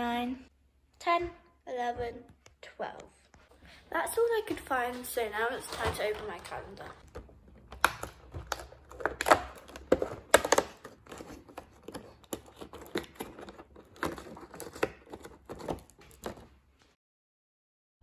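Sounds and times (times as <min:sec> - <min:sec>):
cardboard tearing: 0:07.8 - 0:16.6.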